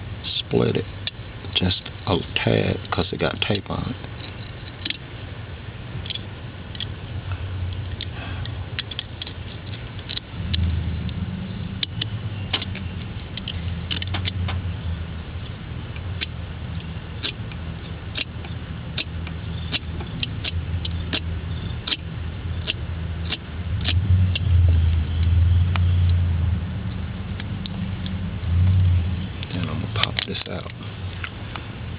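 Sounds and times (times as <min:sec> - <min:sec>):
steady low rumble: 0:00.0 - 0:31.9
box cutter slitting tape: 0:18.1 - 0:18.4, 0:19.0 - 0:22.0, 0:22.6 - 0:24.5.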